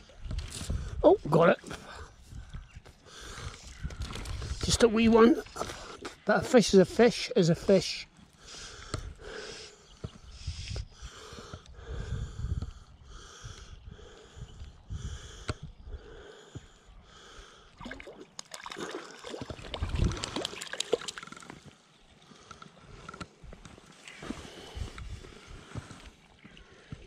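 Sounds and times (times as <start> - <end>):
wind rumbling on microphone: 0.0 - 6.0, 8.6 - 16.3, 19.5 - 20.5, 22.9 - 26.2
fish splashing at surface: 17.8 - 21.6.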